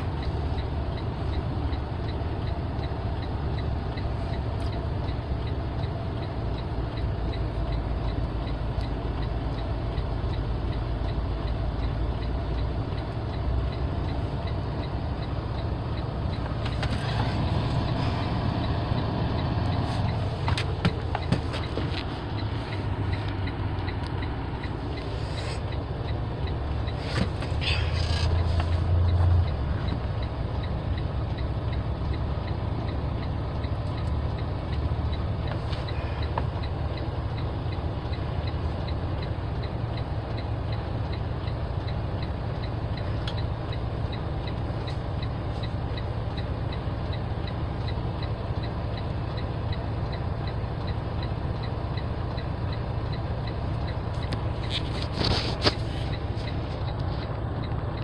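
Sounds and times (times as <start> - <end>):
faint regular ticking: 0.0 - 27.0, 28.0 - 55.2, 55.8 - 58.0
truck engine idling: 0.0 - 58.0.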